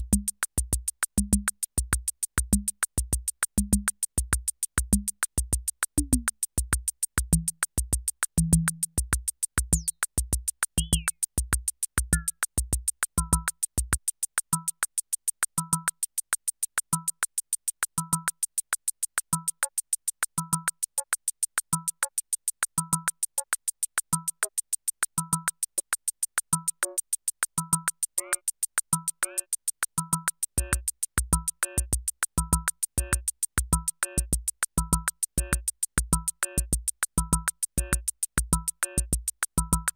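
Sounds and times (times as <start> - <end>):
kick drum: 0.0 - 14.0
drum machine hi-hat ticks: 0.0 - 39.9
pitched percussion: 27.6 - 39.9.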